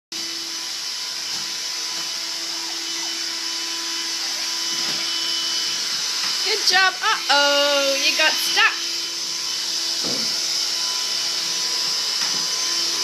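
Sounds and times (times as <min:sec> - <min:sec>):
stick vacuum cleaner running: 0:00.2 - 0:13.0.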